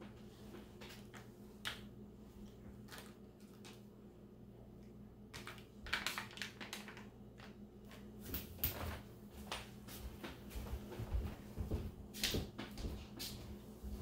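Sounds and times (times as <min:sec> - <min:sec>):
faint low hum: 0:00.0 - 0:14.0
wrapper crackling: 0:05.4 - 0:07.1.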